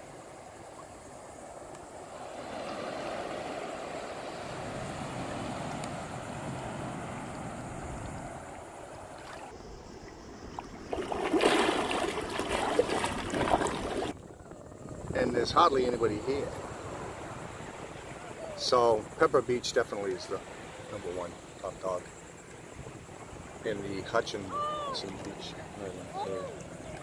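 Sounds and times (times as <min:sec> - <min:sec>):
surf washing onto a beach: 0:00.0 - 0:09.4, 0:10.9 - 0:27.0.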